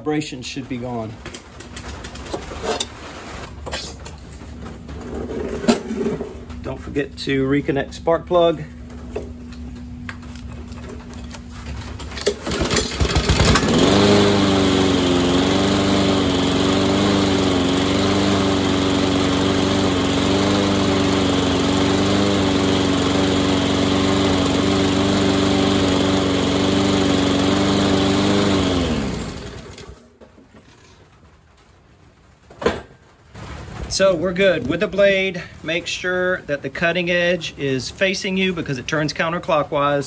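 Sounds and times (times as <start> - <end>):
lawnmower engine running: 10.2 - 30.9.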